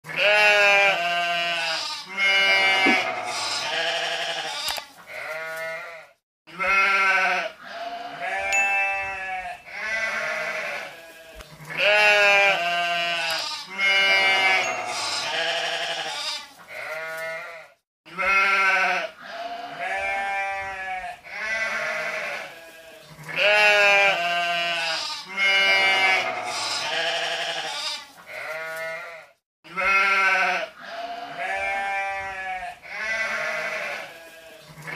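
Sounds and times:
goats bleating: 0:00.1 - 0:34.9.

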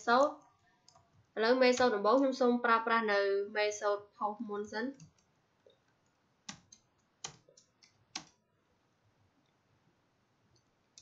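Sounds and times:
keyboard keystrokes: 0:06.0 - 0:08.4.

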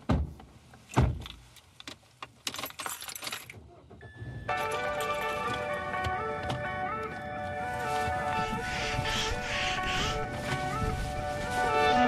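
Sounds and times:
keys jangling: 0:02.4 - 0:03.6, 0:04.5 - 0:05.9
melodic music: 0:04.5 - 0:12.0.

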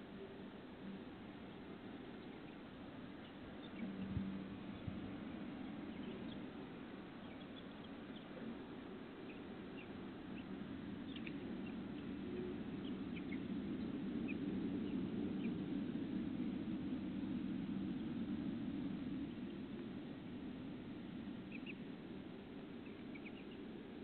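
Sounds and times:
faint bird chirps: 0:00.0 - 0:15.8, 0:21.4 - 0:21.9, 0:22.6 - 0:24.0
low hiss and rumble: 0:00.0 - 0:24.0.

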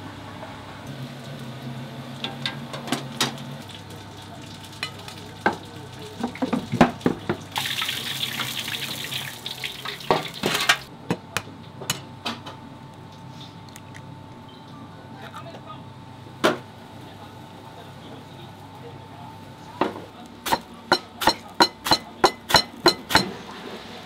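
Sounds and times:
dishes and utensils clinking: 0:20.5 - 0:23.4.

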